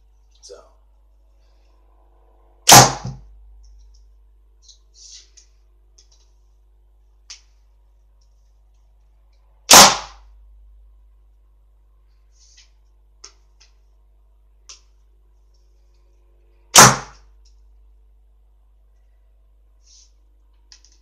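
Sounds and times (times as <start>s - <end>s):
arrow striking cardboard: 2.7s - 3.2s, 9.7s - 10.2s, 16.8s - 17.2s.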